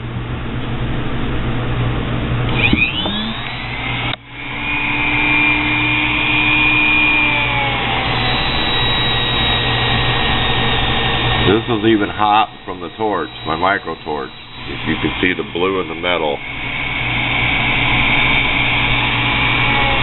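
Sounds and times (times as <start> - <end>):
rotary tool whining: 2.5 - 20.0.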